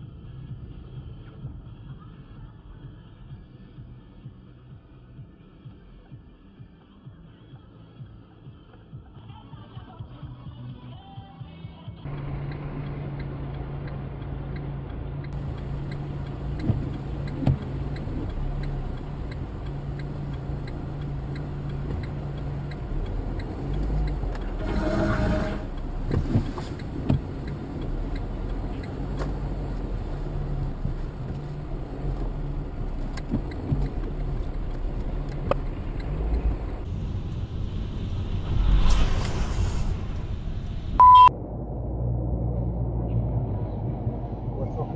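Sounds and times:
car engine and road noise: 0:00.0 - 0:44.9
faint clicks: 0:12.1 - 0:24.6, 0:25.7 - 0:36.9
car horn: 0:24.4 - 0:26.9.

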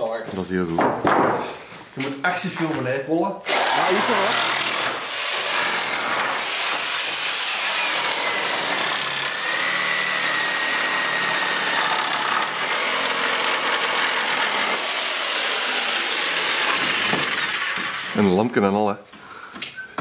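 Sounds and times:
jigsaw sawing through wood: 0:03.4 - 0:18.4.

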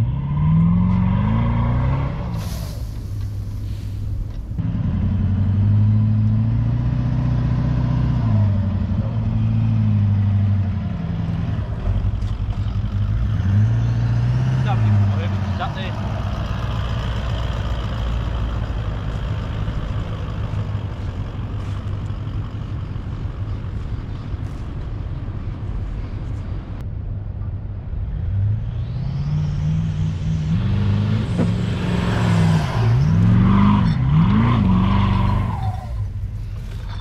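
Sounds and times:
engine revving under load: 0:00.0 - 0:02.7, 0:12.6 - 0:19.6, 0:28.1 - 0:36.0.

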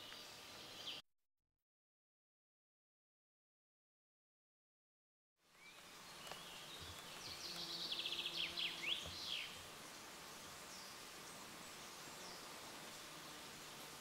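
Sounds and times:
outdoor background hiss: 0:00.0 - 0:01.0, 0:05.4 - 0:14.0
songbird singing: 0:00.0 - 0:01.0, 0:05.4 - 0:14.0.

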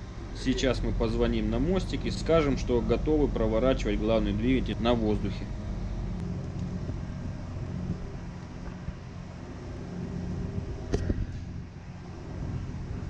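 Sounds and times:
ship machinery hum: 0:00.0 - 0:13.0.

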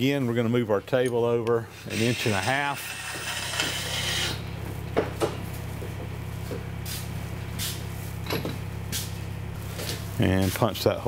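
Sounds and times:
milling machine humming: 0:01.8 - 0:06.9.

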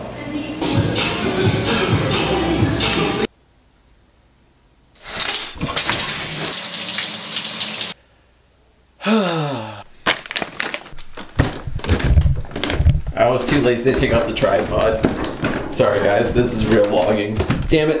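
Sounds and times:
footsteps on wooden stairs: 0:11.0 - 0:18.0.

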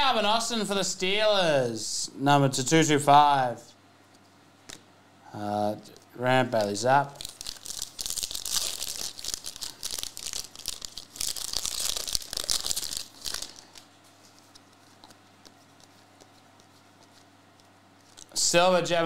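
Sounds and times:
foil wrapper tearing and crinkling: 0:06.6 - 0:15.0.

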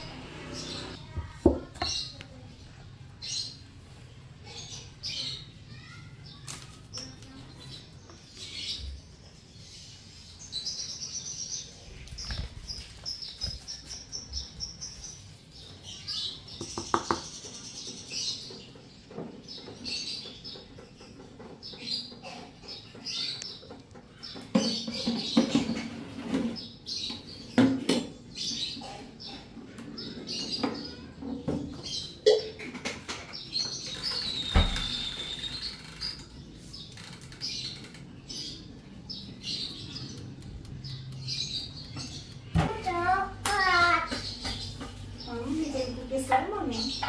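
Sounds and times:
small birds chirping: 0:00.0 - 0:47.0.

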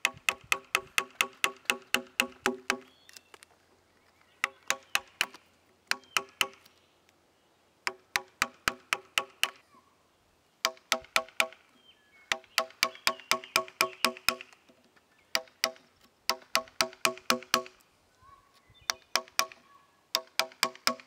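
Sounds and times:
mallet tapping chisel into wood: 0:15.4 - 0:17.8, 0:18.9 - 0:19.6, 0:20.2 - 0:21.0.

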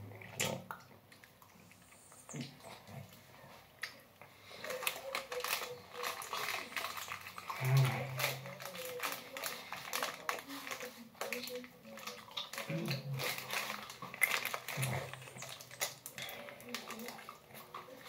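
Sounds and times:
paper napkin crumpling: 0:04.4 - 0:18.0.

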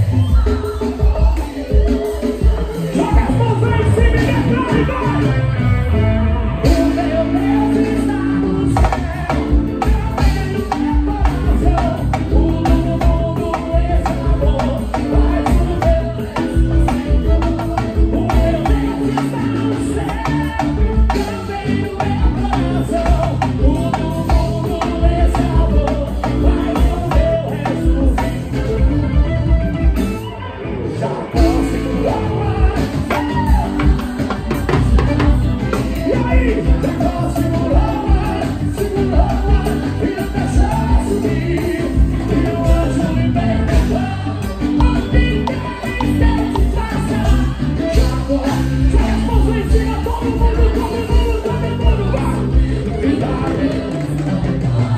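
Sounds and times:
steady drum beat: 0:00.0 - 0:05.8, 0:06.6 - 0:30.2, 0:31.3 - 0:54.9
electric guitar: 0:00.0 - 0:54.9
person singing: 0:00.0 - 0:54.9.

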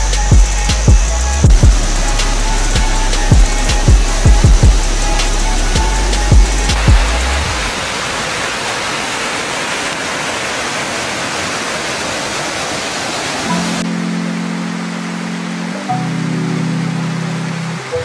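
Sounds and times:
low held tone: 0:00.0 - 0:07.4
deep thumps: 0:00.3 - 0:02.2, 0:02.8 - 0:07.7
stream rushing over boulders: 0:00.4 - 0:18.0.

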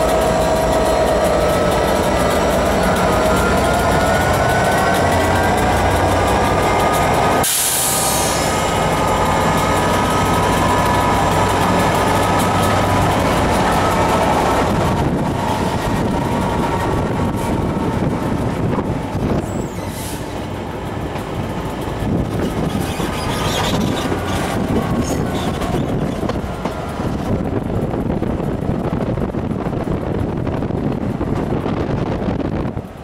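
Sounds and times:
train wheels rumbling on rail: 0:00.0 - 0:33.0
wind rush: 0:01.0 - 0:33.0
high-pitched wheel squeals: 0:19.4 - 0:20.3, 0:22.4 - 0:26.4.

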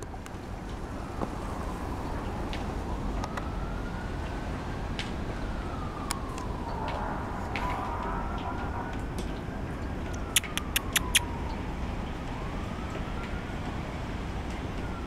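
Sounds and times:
emergency siren wailing: 0:00.0 - 0:15.0
sharp ticks: 0:10.1 - 0:11.2.

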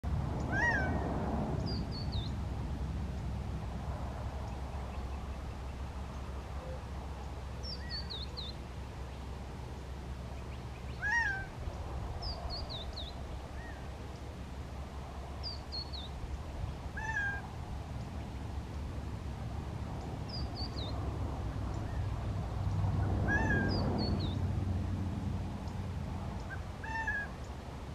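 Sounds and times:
quail calling: 0:00.5 - 0:01.0, 0:10.9 - 0:11.6, 0:17.0 - 0:17.4, 0:23.3 - 0:24.1, 0:26.4 - 0:27.4.

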